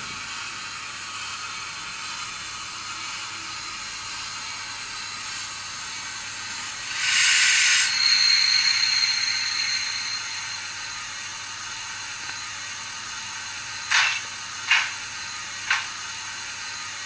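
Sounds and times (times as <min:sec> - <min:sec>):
recorded steam hiss from speaker: 0:04.3 - 0:16.2
thin high tone: 0:06.4 - 0:11.9.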